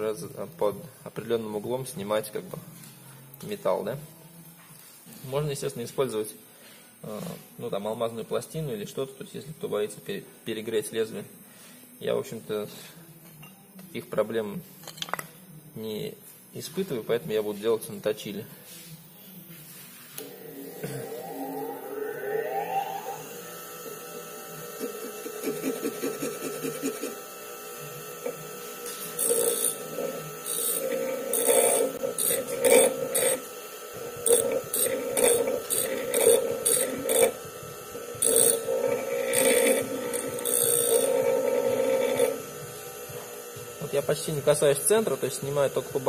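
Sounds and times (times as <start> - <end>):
bench grinder humming: 20.2 - 46.0
blade grinding on stone: 28.2 - 33.5, 34.2 - 37.4, 38.2 - 42.4.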